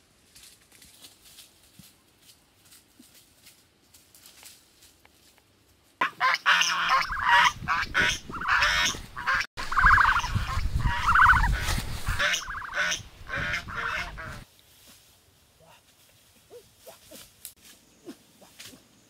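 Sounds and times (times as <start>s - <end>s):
geese honking: 6.0s - 14.5s.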